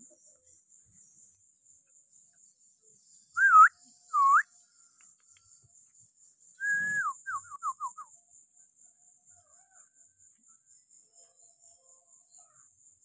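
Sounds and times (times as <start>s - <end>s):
crow whistled calls: 6.6s - 7.8s.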